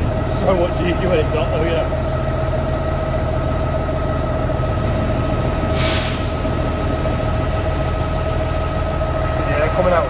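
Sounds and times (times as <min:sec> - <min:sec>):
brief hiss: 0:05.7 - 0:06.4.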